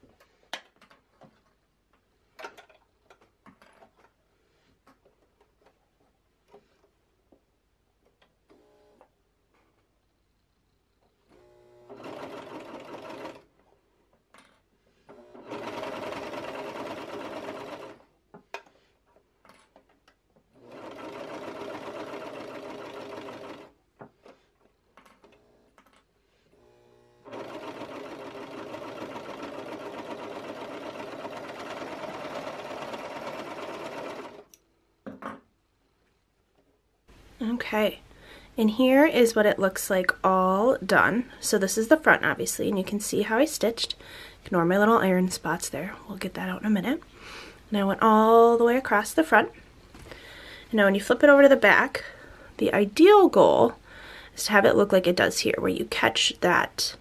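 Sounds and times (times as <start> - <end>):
sewing machine stitching: 11.3 - 13.6, 15.0 - 18.1, 20.5 - 34.6.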